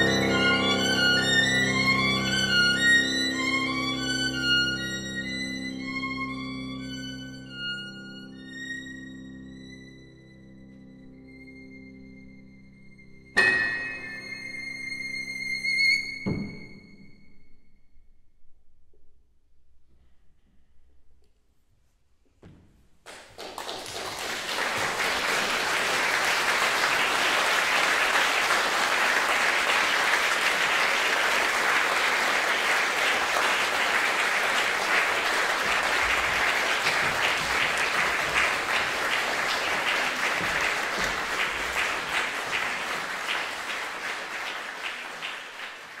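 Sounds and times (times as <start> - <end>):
audience applauding: 0.0 - 4.4, 23.1 - 46.0.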